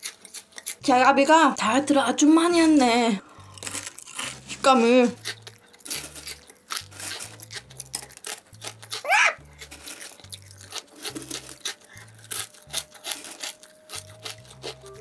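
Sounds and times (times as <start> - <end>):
crunching of potato sticks: 0.0 - 0.9, 2.4 - 15.0
fingers scooping through sticks: 3.5 - 15.0.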